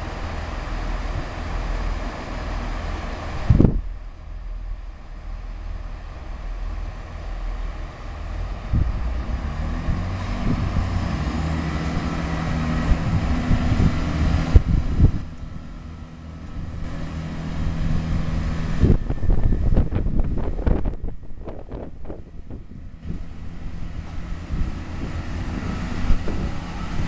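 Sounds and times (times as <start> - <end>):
diesel train engines running: 0.0 - 27.0
high whine: 0.0 - 27.0.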